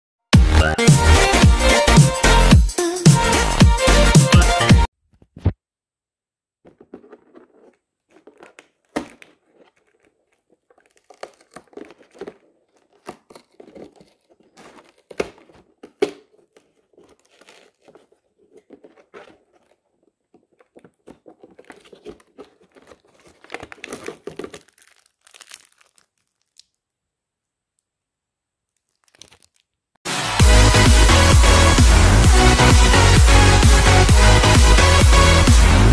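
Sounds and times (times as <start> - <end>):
loud electronic music: 0.4 - 4.9, 30.1 - 35.9
cardboard tearing and crackling: 6.6 - 26.8, 28.8 - 29.8.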